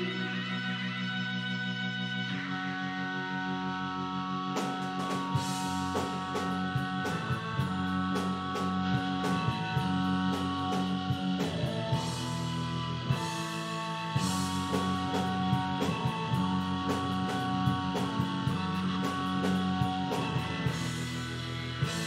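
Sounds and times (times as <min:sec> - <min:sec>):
guitar: 0:00.0 - 0:22.0
keyboard chords: 0:00.0 - 0:22.0
drum kit and cymbals: 0:04.6 - 0:22.0.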